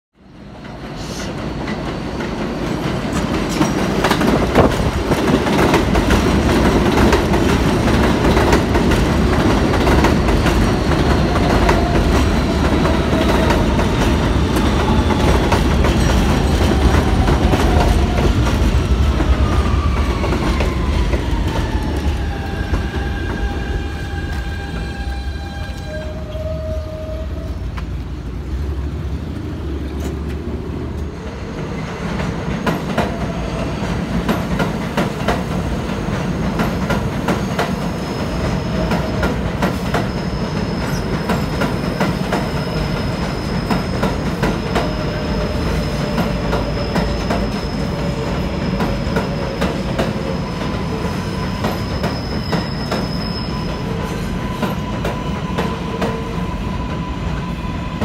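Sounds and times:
train wheels clacking over rail joints: 0:01.4 - 0:18.7, 0:32.1 - 0:56.4
high wheel squeal: 0:37.4 - 0:58.0.

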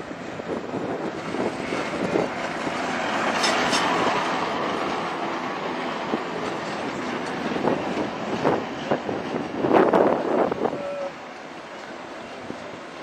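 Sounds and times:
tram wheels rumbling on rails: 0:00.0 - 0:13.0
wheel and rail clicks: 0:01.7 - 0:08.5.

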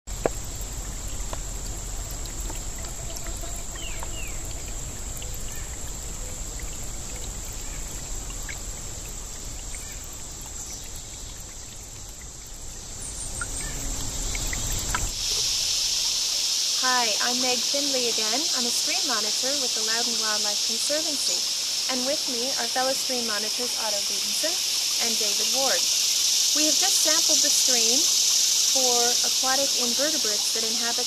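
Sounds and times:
high-pitched insect drone: 0:00.2 - 0:31.0
faint bird chirps: 0:03.2 - 0:08.0.

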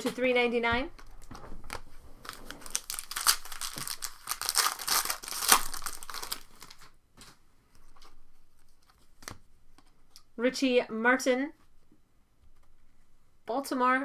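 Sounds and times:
foil wrapper crinkling and tearing: 0:01.0 - 0:07.0.

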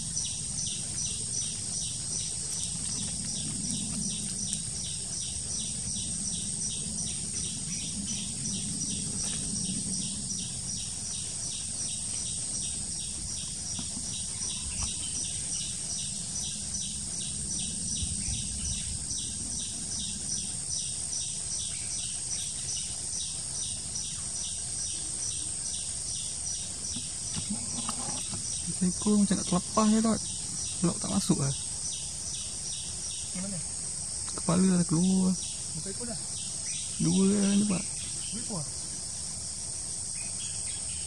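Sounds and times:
low rumble of wind: 0:00.0 - 0:34.3
insects droning: 0:00.0 - 0:41.0
pulsing insect chirp: 0:00.0 - 0:41.0.

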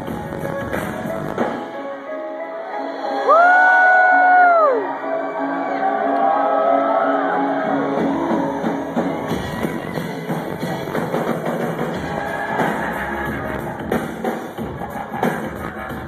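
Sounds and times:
loud live electronic music: 0:00.0 - 0:16.0
deep bass: 0:11.9 - 0:14.0, 0:14.6 - 0:16.0.

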